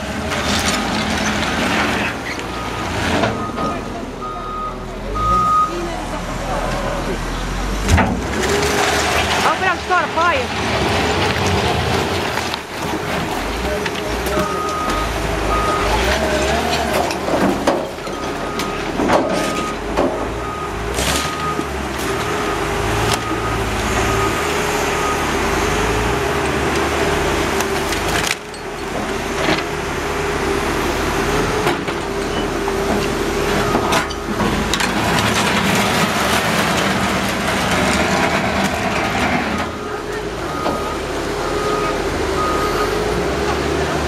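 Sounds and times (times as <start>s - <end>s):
debris banging and scraping: 0.0s - 4.1s, 7.8s - 42.4s
heavy machinery engines: 0.0s - 44.0s
reversing alarm beeping: 2.5s - 5.8s, 14.4s - 16.0s, 39.6s - 43.3s.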